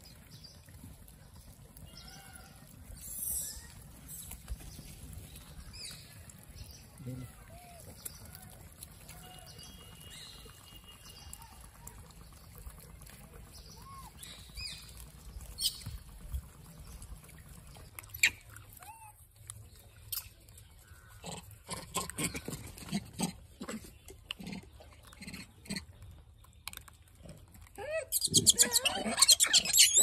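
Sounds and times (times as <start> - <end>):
clicks and rustles of food: 0.0 - 21.2, 25.9 - 27.8
monkeys calling and squeaking: 2.0 - 4.4, 18.1 - 19.1, 27.8 - 30.0.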